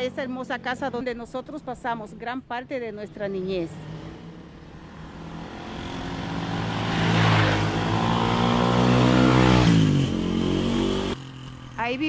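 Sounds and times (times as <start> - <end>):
vehicle engine passing by: 3.4 - 11.7.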